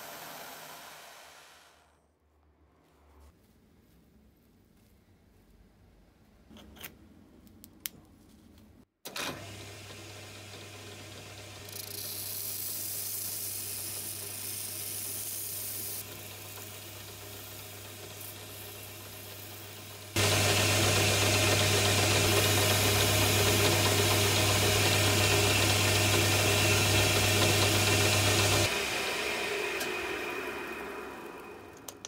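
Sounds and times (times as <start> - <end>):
lathe motor hum: 0.0 - 1.8, 16.0 - 32.0.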